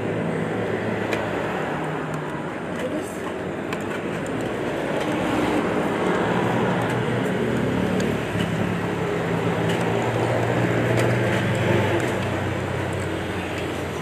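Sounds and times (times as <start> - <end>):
street traffic: 0.0 - 14.0.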